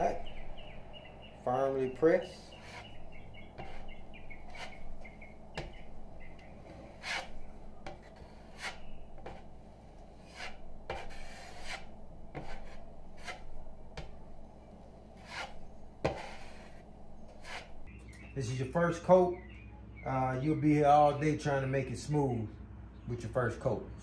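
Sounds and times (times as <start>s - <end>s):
putty knife scraping drywall: 2.3s - 6.0s, 6.6s - 9.6s, 10.2s - 14.1s, 15.2s - 17.8s.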